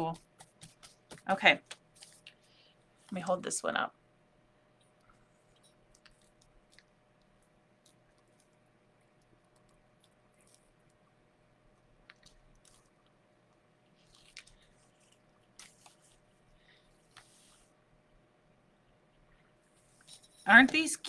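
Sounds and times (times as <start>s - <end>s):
damp paper peeling and crinkling: 14.0s - 16.3s.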